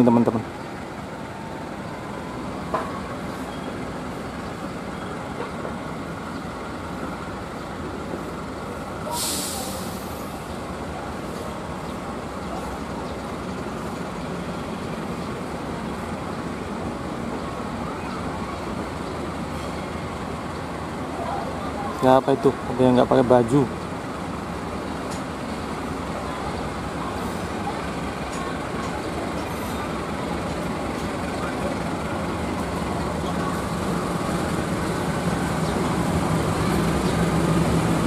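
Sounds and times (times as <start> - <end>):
rumble of standing trains: 0.0 - 38.0
air brakes hissing: 9.0 - 10.5.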